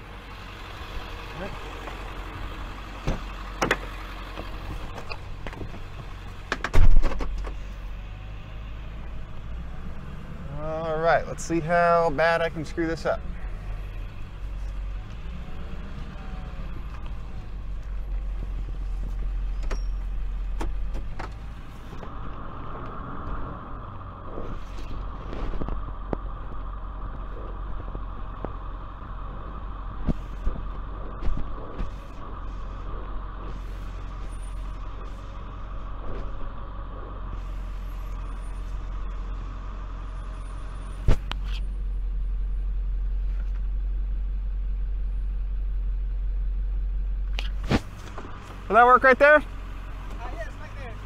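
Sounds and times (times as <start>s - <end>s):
truck engine idling: 0.0s - 51.0s
cab door shutting: 3.0s - 7.6s, 19.4s - 21.5s.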